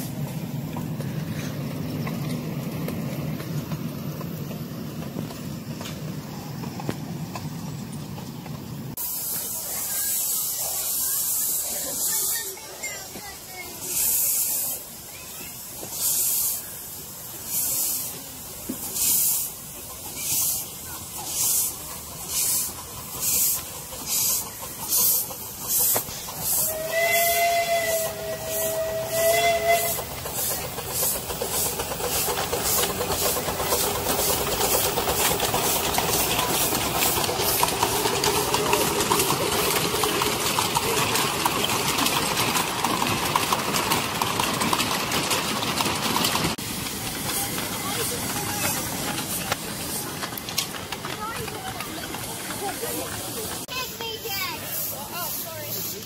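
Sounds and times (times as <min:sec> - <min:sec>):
steam locomotive chuffing: 0:00.0 - 0:56.0
steam hiss: 0:08.9 - 0:56.0
steam whistle blast: 0:26.6 - 0:30.0.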